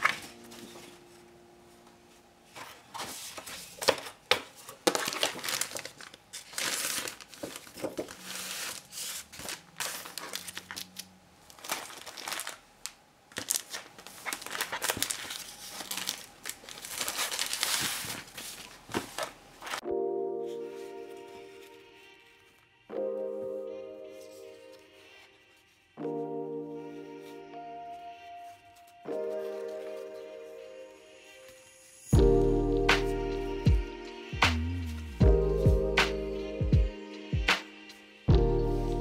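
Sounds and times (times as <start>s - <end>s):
paper and plastic sheets rustling: 0.0s - 1.0s, 2.5s - 19.8s.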